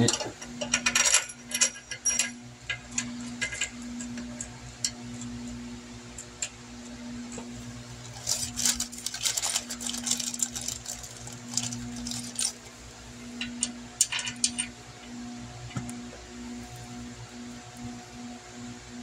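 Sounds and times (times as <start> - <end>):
steady low hum: 0.0 - 19.0
metal parts clinking and rattling: 0.1 - 2.4, 8.1 - 12.6.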